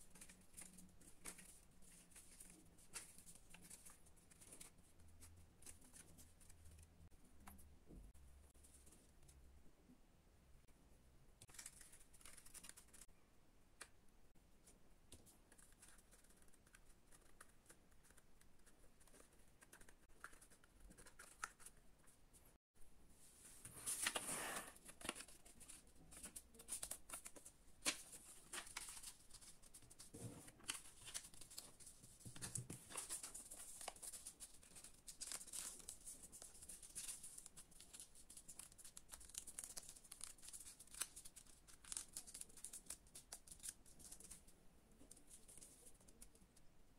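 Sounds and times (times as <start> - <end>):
stiff paper being folded: 0.0 - 7.0, 11.4 - 13.1, 23.8 - 46.4
small paper clicks: 11.4 - 13.1, 24.8 - 46.6.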